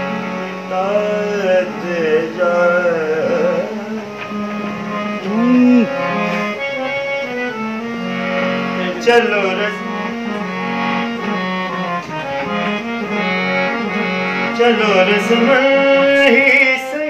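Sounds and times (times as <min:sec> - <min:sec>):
harmonium playing: 0:00.0 - 0:17.0
man singing: 0:00.6 - 0:06.2, 0:08.8 - 0:10.5, 0:13.6 - 0:17.0.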